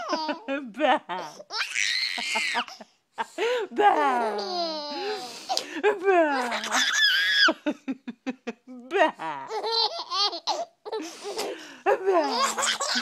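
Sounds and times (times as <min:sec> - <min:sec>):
baby laughing: 0:00.0 - 0:00.5, 0:01.2 - 0:02.8, 0:06.4 - 0:07.7, 0:09.4 - 0:13.0.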